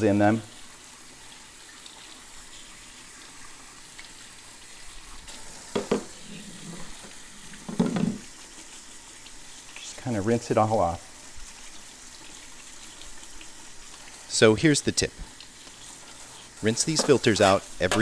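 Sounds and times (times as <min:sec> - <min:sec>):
tap water splashing into sink: 0:05.6 - 0:08.4, 0:16.9 - 0:18.0.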